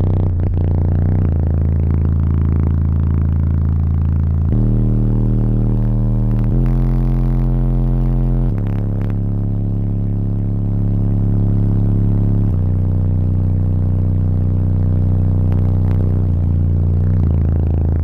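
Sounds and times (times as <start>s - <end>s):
deep bass music from subwoofers: 0.0s - 18.0s.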